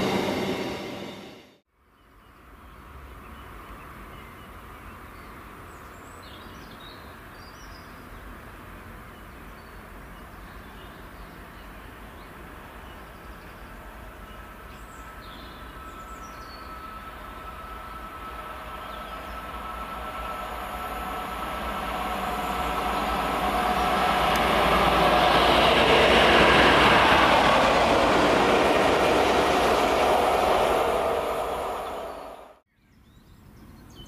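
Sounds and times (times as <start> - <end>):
approaching train whine: 0.0 - 1.6, 11.9 - 32.7
train sound: 0.0 - 1.6, 11.4 - 32.7.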